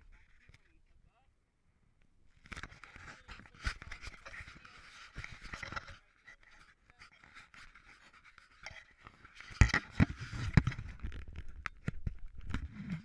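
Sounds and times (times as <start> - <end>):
camera knocks and rubbing: 2.5 - 6.6, 7.3 - 13.0.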